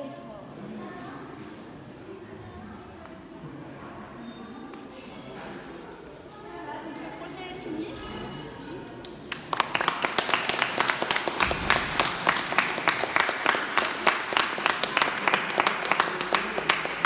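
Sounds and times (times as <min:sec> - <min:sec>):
people applauding: 0:09.0 - 0:17.0.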